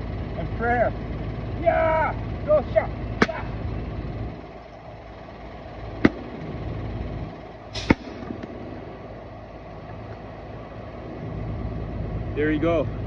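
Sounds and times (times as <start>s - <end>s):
axe striking wood: 7.8s - 8.2s.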